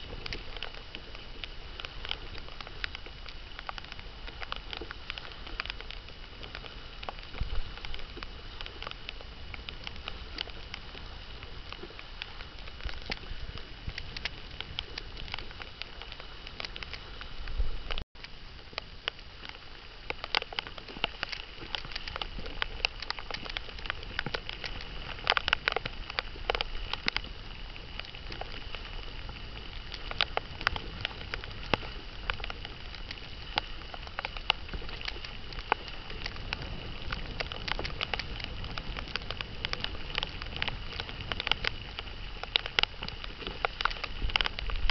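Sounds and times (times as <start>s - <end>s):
water slapping against kayak hull: 19.1s - 44.9s.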